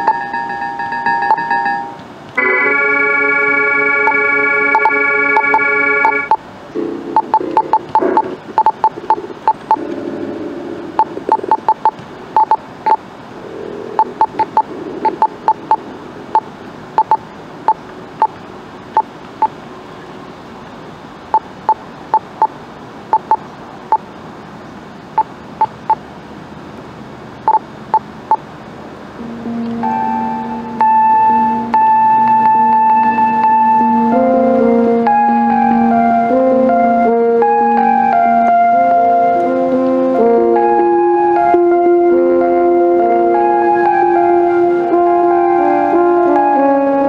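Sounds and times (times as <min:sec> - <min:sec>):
held low keyboard notes: 0:00.0 - 0:12.6, 0:29.2 - 0:47.0
electronic keyboard high notes: 0:00.0 - 0:17.8, 0:29.2 - 0:47.0.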